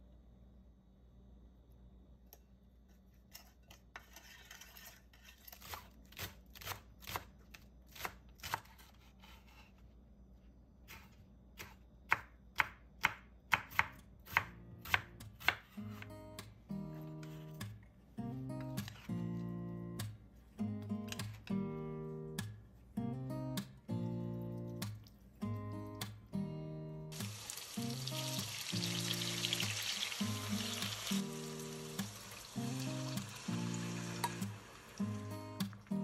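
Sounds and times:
knife chopping on cutting board: 10.9 - 16.1
gentle guitar music: 15.8 - 36.0.

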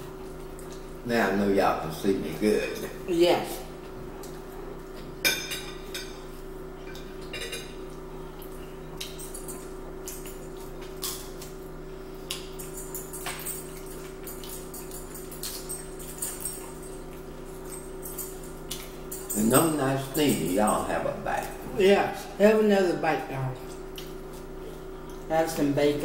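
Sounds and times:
steady low hum: 0.0 - 26.0
cutlery clinking on plates: 5.3 - 6.2, 6.9 - 7.8, 12.3 - 17.0.

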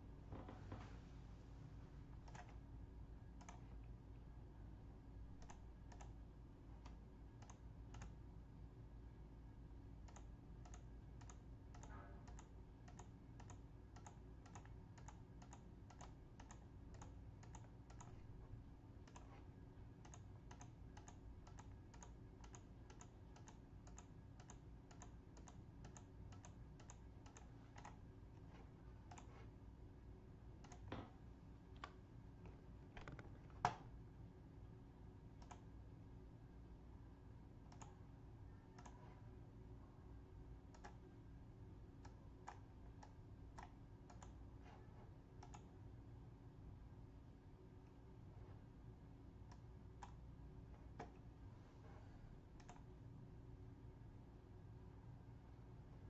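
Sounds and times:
low room hum: 0.0 - 56.0
computer mouse clicks: 2.1 - 2.6, 3.3 - 4.0, 5.4 - 8.2, 10.0 - 29.6, 30.5 - 33.9, 35.3 - 35.7, 37.6 - 38.1, 38.7 - 39.2, 40.6 - 41.1, 42.0 - 45.8, 49.4 - 51.3, 52.5 - 52.9.

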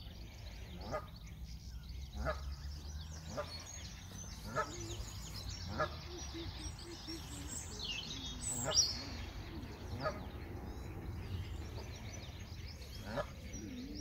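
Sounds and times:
geese honking: 4.4 - 6.5.

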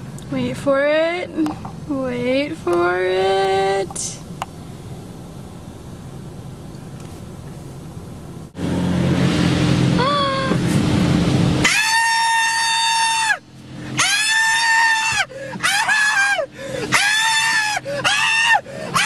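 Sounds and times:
low steady hum: 0.0 - 19.0
long high scream: 11.6 - 13.4, 14.0 - 19.0.

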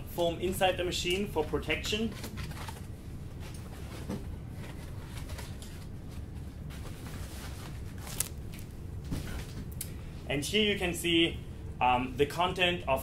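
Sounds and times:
low room hum: 0.0 - 13.0
packing foam rustling: 6.2 - 8.7.

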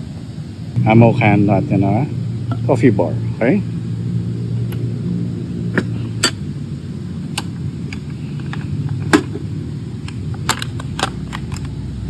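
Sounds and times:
low rumble of traffic: 0.0 - 12.0
metal ammo can clicks and knocks: 10.1 - 11.7.

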